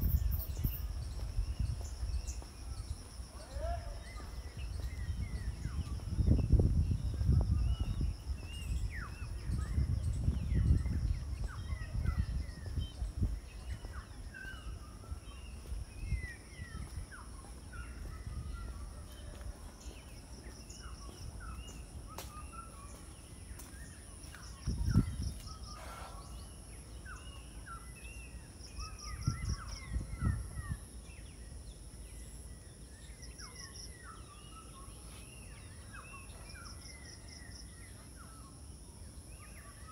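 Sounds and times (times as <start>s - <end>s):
birds chirping: 0.0s - 39.9s
insect drone with trills: 0.0s - 39.9s
low rumbles on microphone: 4.3s - 19.7s, 24.5s - 26.1s.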